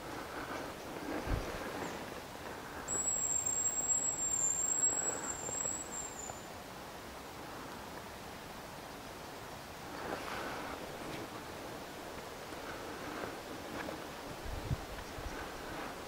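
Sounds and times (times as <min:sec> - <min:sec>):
high thin whistle: 0:02.9 - 0:06.5.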